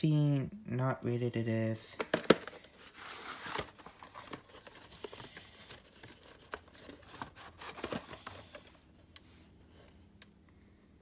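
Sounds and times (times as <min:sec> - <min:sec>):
cardboard rubbing and rustling: 0:02.2 - 0:08.6.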